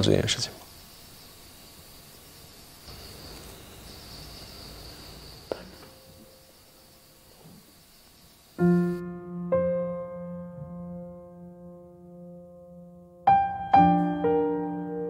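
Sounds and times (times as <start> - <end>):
crickets chirring: 0.0 - 9.6
piano chord: 8.6 - 15.0.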